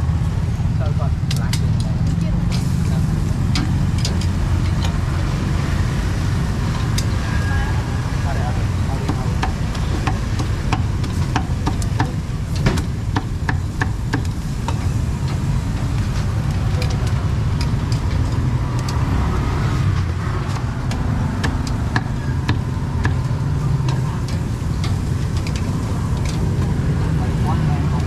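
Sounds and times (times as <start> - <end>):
road traffic rumble: 0.0 - 28.0
sharp clicks and clatters: 9.0 - 28.0.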